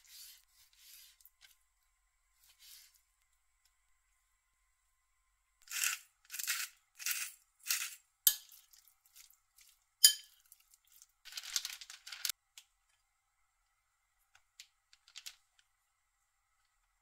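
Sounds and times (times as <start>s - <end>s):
pepper mill grinding: 5.6s - 8.4s.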